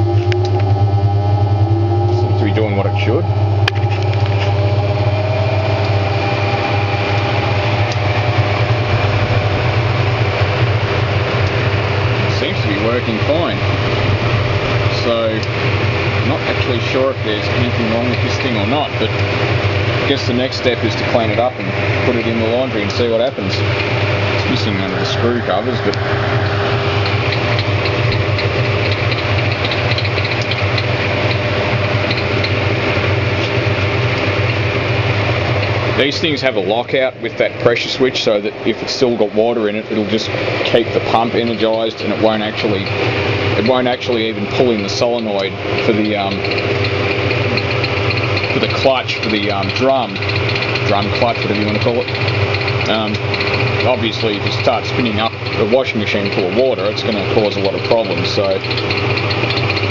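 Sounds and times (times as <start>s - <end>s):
washing machine spinning: 0.0s - 59.9s.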